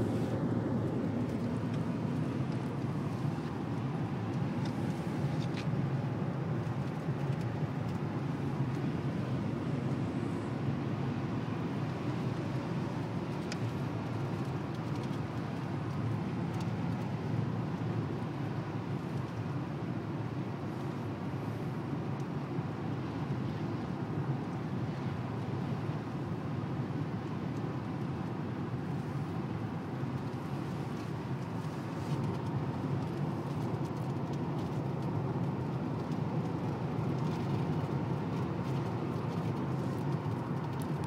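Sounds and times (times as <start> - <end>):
car cabin road noise: 0.0 - 41.0.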